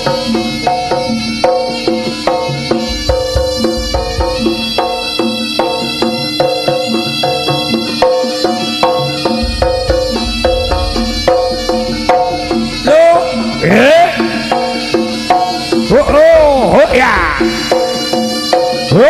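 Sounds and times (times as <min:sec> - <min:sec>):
drums: 0:00.0 - 0:19.0
ensemble of pitched percussion: 0:00.0 - 0:19.0
loud sliding tone: 0:09.3 - 0:16.8.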